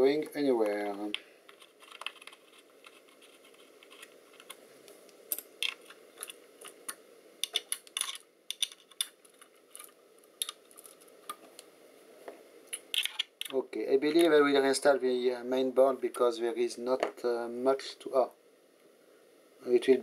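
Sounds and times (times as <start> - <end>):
faint steady hum: 0.0 - 20.0
tools and metal parts clicking: 7.4 - 11.0.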